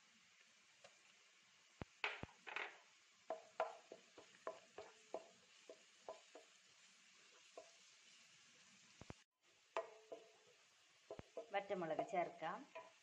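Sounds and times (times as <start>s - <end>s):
spatula scraping pan: 3.3s - 6.6s, 9.8s - 13.0s.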